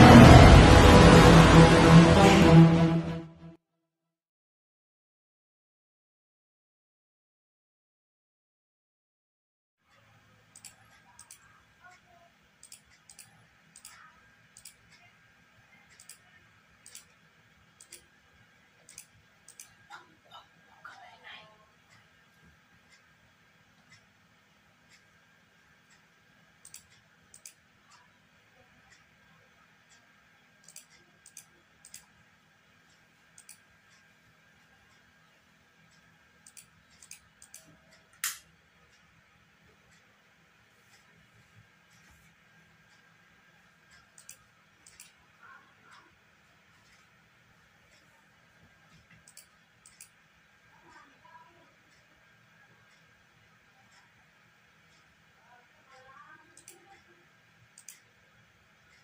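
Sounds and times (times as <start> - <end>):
computer mouse clicking: 10.5 - 12.0, 12.6 - 15.1, 15.8 - 17.2, 17.8 - 18.1, 18.8 - 20.0, 26.6 - 28.0, 30.6 - 32.2, 33.3 - 34.1, 35.9 - 38.5, 43.9 - 45.2, 49.0 - 50.2, 56.0 - 57.1, 57.7 - 58.2
faint sharp clicks: 49.0 - 50.2, 56.6 - 56.8, 57.8 - 58.1.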